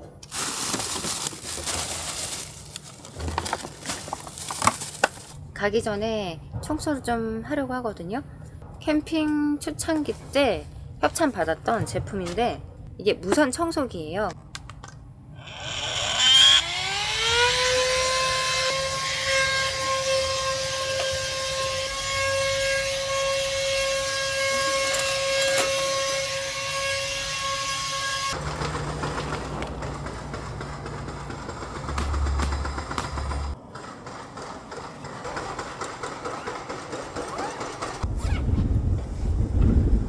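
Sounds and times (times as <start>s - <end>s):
cordless vacuum cleaner motor whine: 15.4s - 19.0s.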